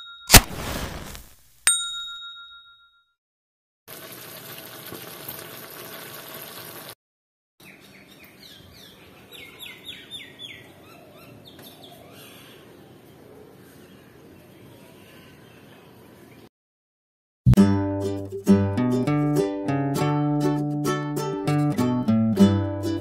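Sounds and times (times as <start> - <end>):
bird chirps: 7.6 - 12.7.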